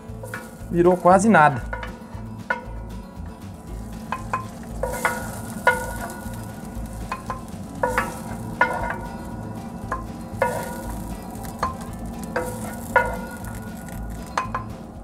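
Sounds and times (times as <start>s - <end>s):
faint sizzle: 0.0s - 2.2s, 3.4s - 15.0s
spoon knocking on metal pan: 1.7s - 2.8s, 4.0s - 14.8s.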